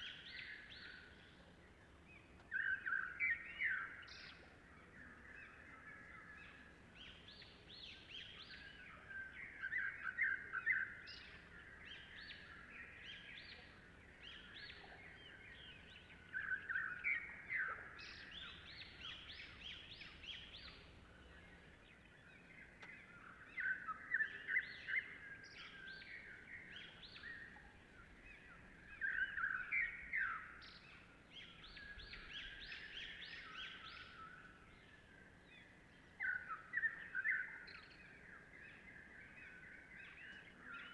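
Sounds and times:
birds chirping: 0.0s - 40.9s.

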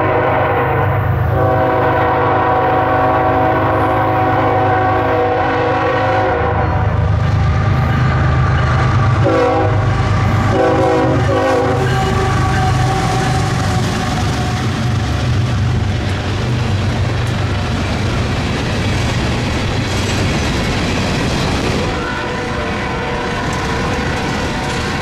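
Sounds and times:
locomotive air horn blasts: 0.0s - 6.9s, 9.2s - 14.3s, 21.9s - 25.0s
diesel locomotive rumble: 0.0s - 25.0s.

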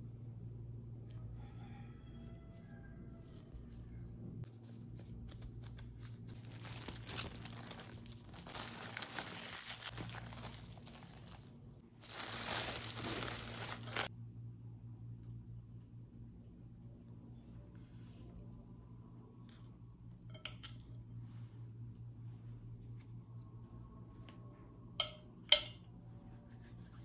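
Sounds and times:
plastic cling film crinkling: 5.2s - 14.1s.

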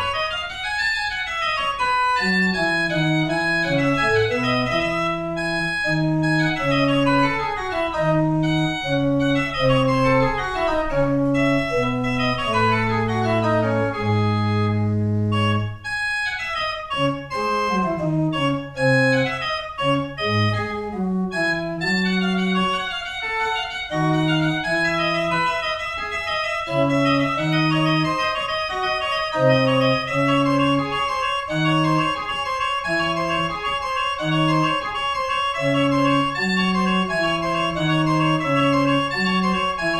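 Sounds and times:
pipe organ playing: 0.0s - 39.9s.

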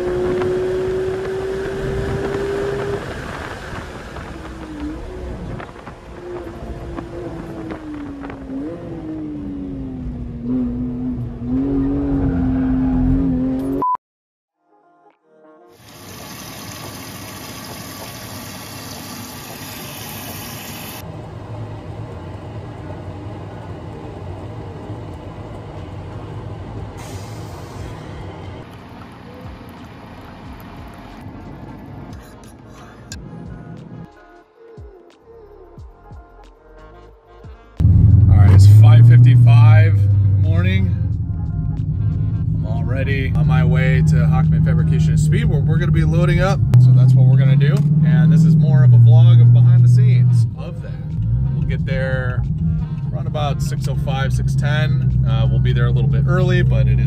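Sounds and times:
car engine at high revs: 0.0s - 13.8s, 37.8s - 57.0s.

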